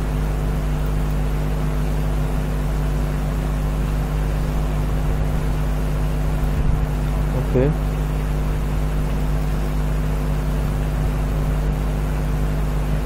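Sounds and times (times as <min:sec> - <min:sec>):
machine humming: 0:00.0 - 0:13.0.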